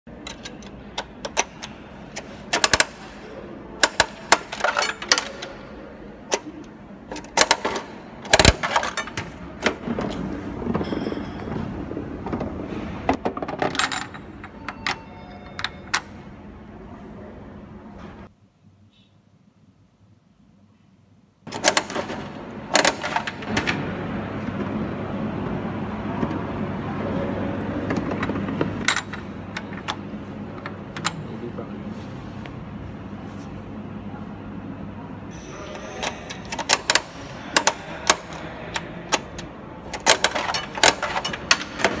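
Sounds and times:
coins clinking into machine: 3.8 - 5.8, 7.2 - 9.8, 13.4 - 16.2, 21.5 - 24.0, 35.3 - 42.0.

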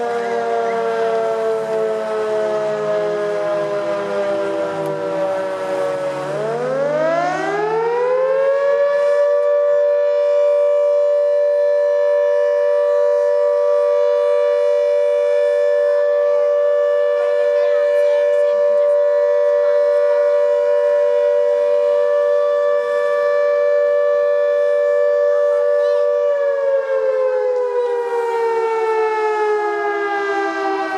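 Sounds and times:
two-tone wailing siren: 0.0 - 30.9.

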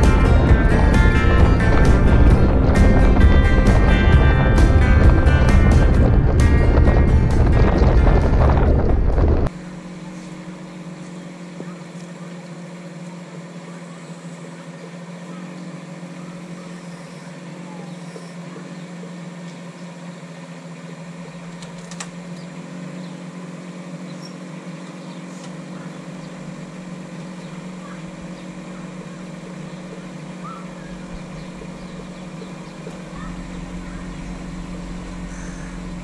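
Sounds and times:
diesel engine running: 0.0 - 36.0.

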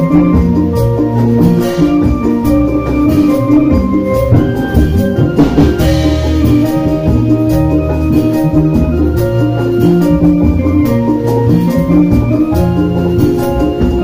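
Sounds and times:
low drum beats: 0.0 - 11.1, 11.7 - 14.0
cymbals: 0.0 - 14.0
bronze gongs ringing: 0.8 - 9.1.

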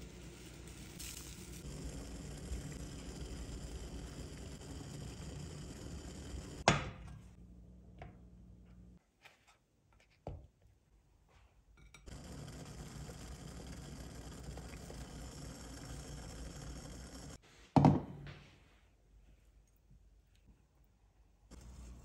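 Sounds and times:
water boiling in saucepan: 0.0 - 6.7, 12.1 - 17.4.

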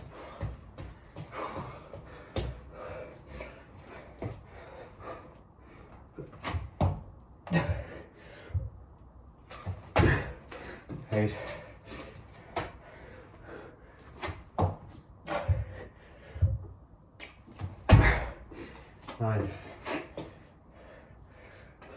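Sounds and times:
hard breathing: 0.0 - 6.4, 7.5 - 16.8, 17.9 - 21.9
thuds on floor mat: 9.6 - 10.4, 17.6 - 18.4.

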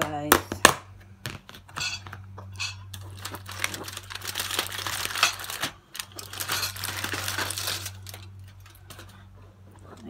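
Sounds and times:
aluminium foil crinkling: 2.6 - 9.3.

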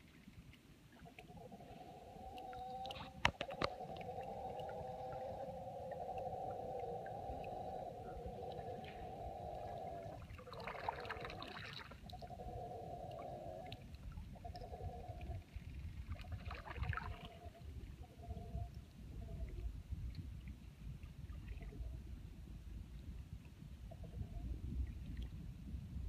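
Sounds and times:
howler monkeys howling: 1.4 - 10.2.

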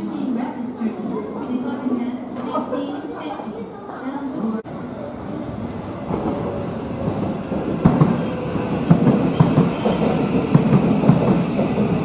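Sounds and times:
electric train pulling in: 4.7 - 12.0.

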